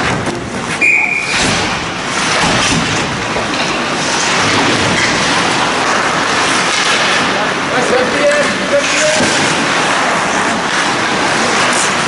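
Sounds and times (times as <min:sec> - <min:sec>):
skating and arena din: 0:00.0 - 0:12.0.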